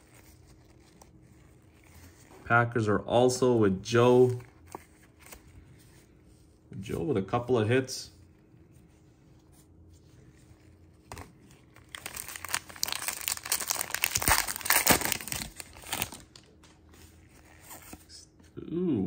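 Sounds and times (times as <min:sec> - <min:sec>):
foil wrapper crinkling and tearing: 0:11.1 - 0:16.8.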